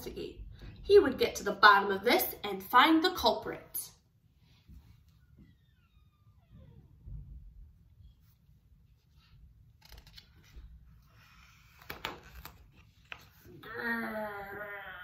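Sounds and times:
paper page rustling: 9.1s - 13.5s
woman growling: 13.6s - 15.0s.

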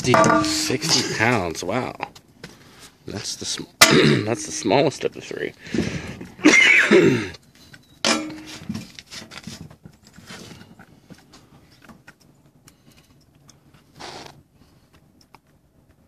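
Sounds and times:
person speaking: 0.0s - 1.9s, 3.1s - 5.6s.

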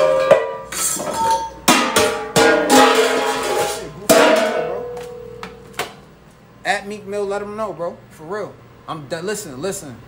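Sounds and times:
metal pans crashing on tiled floor: 0.0s - 6.0s.

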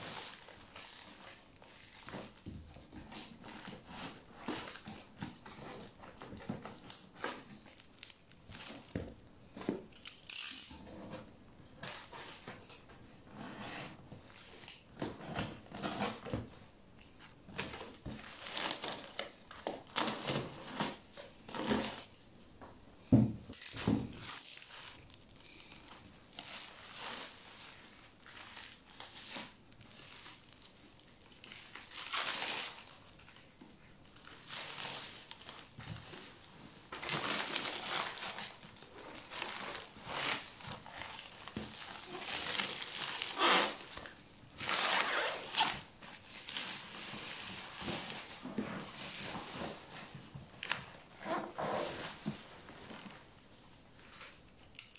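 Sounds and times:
cardboard and plastic tearing: 13.4s - 16.6s, 17.5s - 22.2s, 23.5s - 53.4s.

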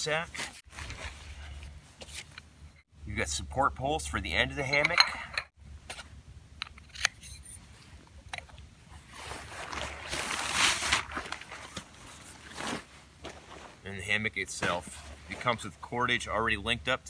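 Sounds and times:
nylon fabric rustling: 8.9s - 15.9s.

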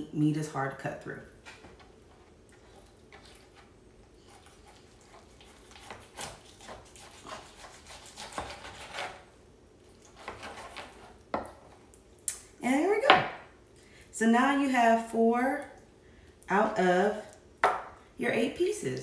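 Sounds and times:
knife cutting on plastic cutting board: 4.3s - 9.2s, 10.1s - 11.5s.

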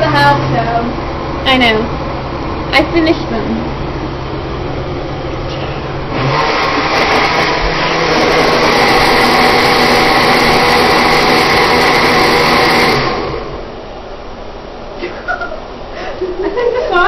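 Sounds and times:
low hum: 0.0s - 16.5s
blender running: 5.8s - 13.7s.

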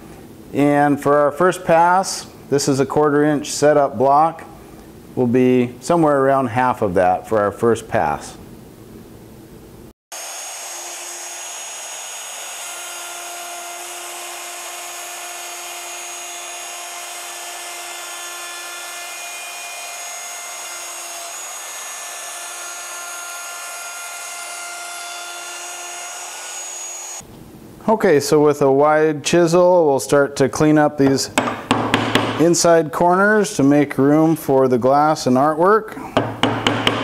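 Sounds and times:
router cutting wood: 10.1s - 27.2s.

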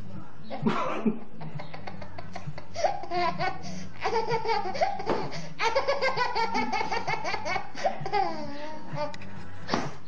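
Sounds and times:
toddler laughing: 1.4s - 9.2s.

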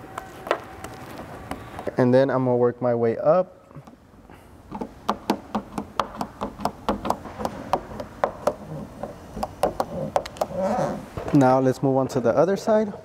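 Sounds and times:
squeegee clicking on plastic: 4.7s - 10.6s.

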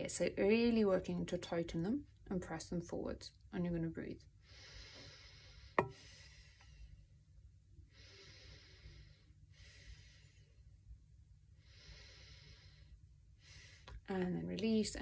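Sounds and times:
woman breathing deeply: 4.4s - 7.1s, 7.8s - 10.8s, 11.5s - 14.0s.

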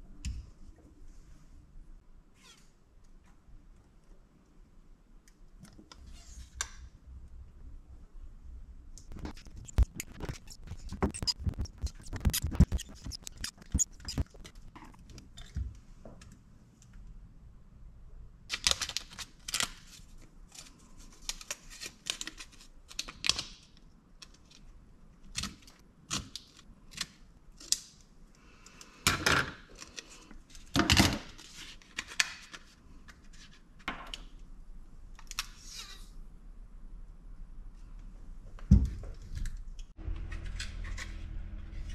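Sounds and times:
tape and paper rustling and tearing: 9.0s - 15.3s, 18.5s - 23.6s.

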